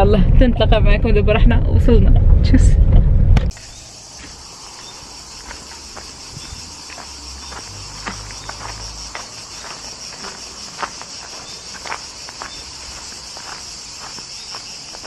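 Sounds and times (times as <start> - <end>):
low rumble: 0.0 - 4.0
crickets chirring: 3.5 - 15.0
footsteps crunching dry leaves: 3.5 - 15.0.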